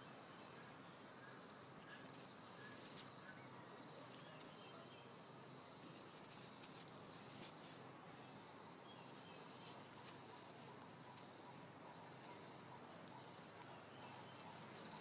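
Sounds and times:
soft clicks and rustles: 0:00.7 - 0:03.2, 0:05.8 - 0:07.9, 0:09.6 - 0:15.0.

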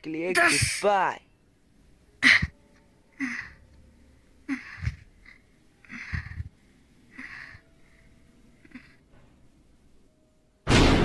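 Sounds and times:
person wheezing breaths: 0:03.1 - 0:03.7, 0:04.4 - 0:09.0.

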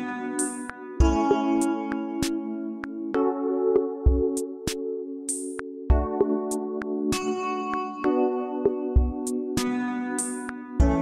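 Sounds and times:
electronic percussion: 0:00.0 - 0:02.4, 0:03.8 - 0:07.9, 0:08.7 - 0:11.0
sustained keyboard chords: 0:00.0 - 0:11.0
deep kick drum: 0:01.0 - 0:01.2, 0:04.1 - 0:04.3, 0:05.9 - 0:06.2, 0:09.0 - 0:09.2, 0:10.8 - 0:11.0.

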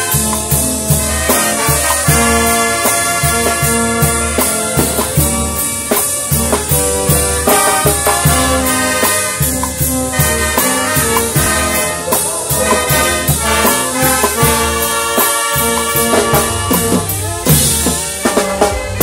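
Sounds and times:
brass band playing ballad: 0:00.0 - 0:19.0
held horn chords: 0:00.0 - 0:19.0
steady drum beat: 0:00.0 - 0:19.0.

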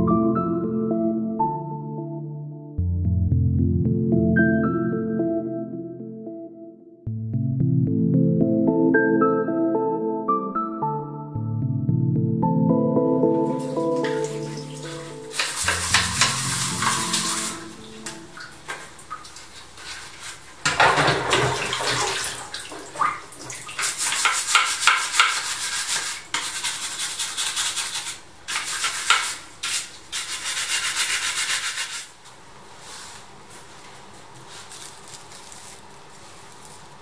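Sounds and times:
brush scrubbing: 0:13.6 - 0:22.5, 0:23.4 - 0:32.2, 0:34.4 - 0:37.0.

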